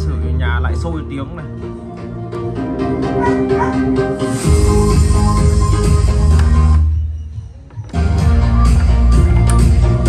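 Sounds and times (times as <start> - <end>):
music through speakers: 0.0 - 10.0
heavy bass: 2.1 - 7.0, 8.0 - 10.0.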